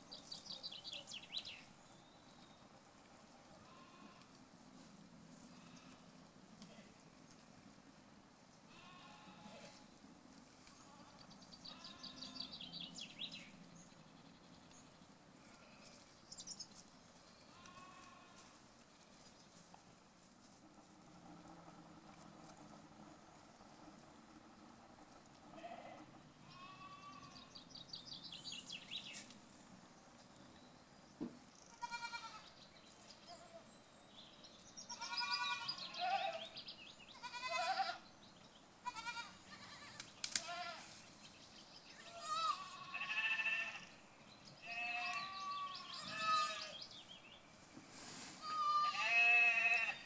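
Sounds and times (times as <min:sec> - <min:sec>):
goats bleating: 0:08.7 - 0:09.8, 0:17.5 - 0:18.5, 0:25.6 - 0:27.4, 0:31.7 - 0:32.4, 0:34.9 - 0:36.5, 0:37.1 - 0:38.0, 0:38.8 - 0:40.9, 0:42.0 - 0:43.9, 0:44.6 - 0:46.8, 0:48.4 - 0:50.0.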